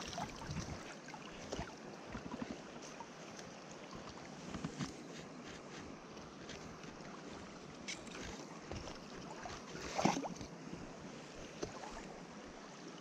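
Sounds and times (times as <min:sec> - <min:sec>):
wind on microphone: 0:00.0 - 0:00.9.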